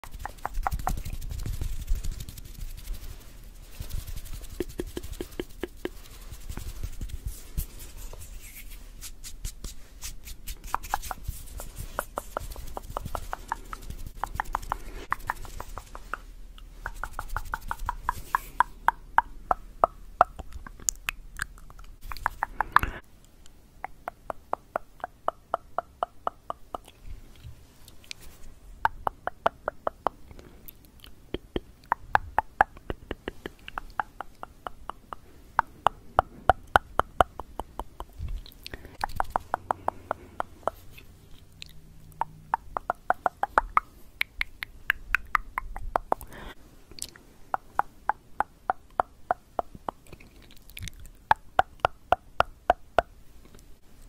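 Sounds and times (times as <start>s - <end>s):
wet mouth sounds: 0.0s - 53.6s
tongue clicking: 12.0s - 27.0s, 27.9s - 53.6s.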